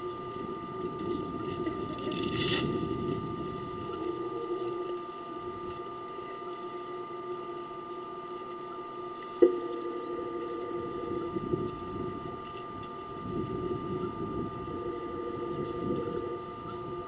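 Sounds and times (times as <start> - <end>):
electrical hum: 0.0 - 17.0
low rustle and rumble: 0.0 - 17.0.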